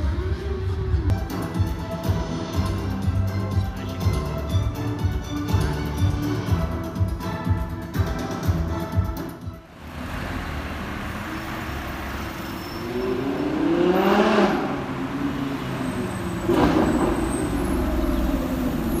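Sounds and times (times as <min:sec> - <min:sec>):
city street traffic: 0:00.0 - 0:19.0
car passing by: 0:09.8 - 0:19.0.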